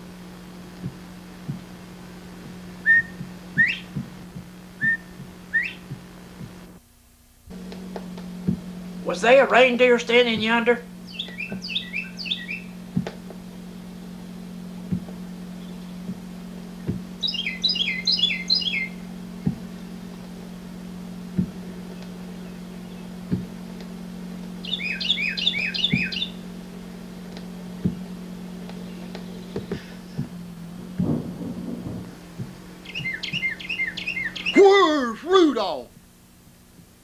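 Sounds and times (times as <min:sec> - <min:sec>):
steady low hum: 0:00.0 - 0:37.0
bird chirping: 0:02.8 - 0:04.0, 0:04.8 - 0:05.9, 0:09.2 - 0:14.1, 0:15.3 - 0:20.1, 0:21.8 - 0:23.3, 0:24.5 - 0:30.9, 0:32.6 - 0:34.7.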